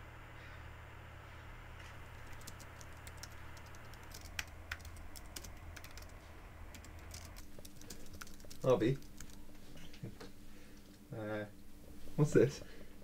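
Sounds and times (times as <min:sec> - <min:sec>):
low room hum: 0:00.0 - 0:13.0
keyboard typing clicks: 0:02.1 - 0:09.4.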